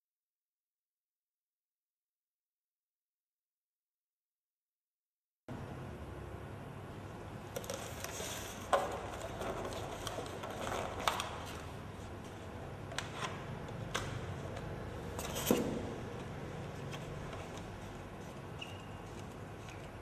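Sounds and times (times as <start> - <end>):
packaging rustling: 7.6 - 11.7.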